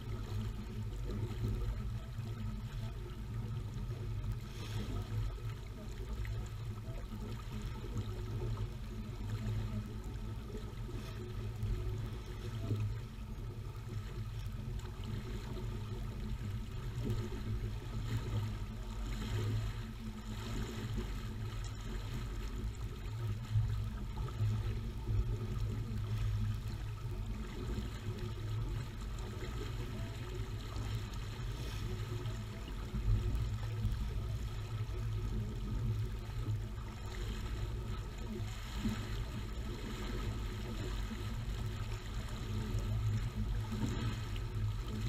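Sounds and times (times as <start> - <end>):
steady low rumble: 0.0 - 45.0
water rushing along a hull: 0.0 - 45.0.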